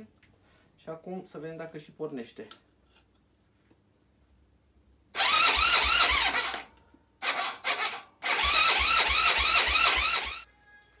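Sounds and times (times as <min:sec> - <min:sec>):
electric starter cranking engine: 0:05.2 - 0:10.5.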